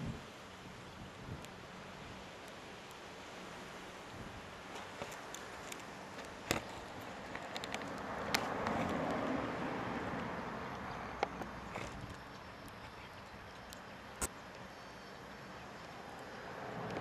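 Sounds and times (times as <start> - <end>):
outdoor background noise: 0.0 - 17.0
passing vehicle: 6.5 - 12.7, 15.1 - 17.0.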